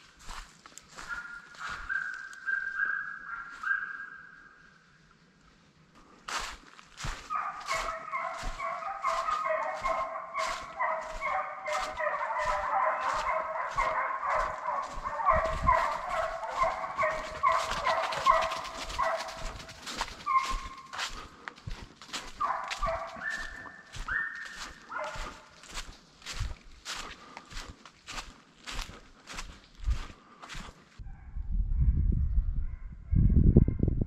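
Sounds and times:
footsteps crunching dry leaves: 0.0 - 2.5, 6.1 - 30.8
hunting hounds baying: 0.2 - 4.5, 7.0 - 30.7.

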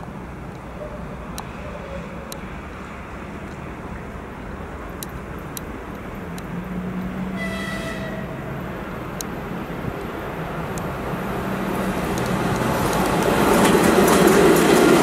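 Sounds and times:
train rumble: 0.0 - 15.0
locomotive horn blast: 7.2 - 8.5.

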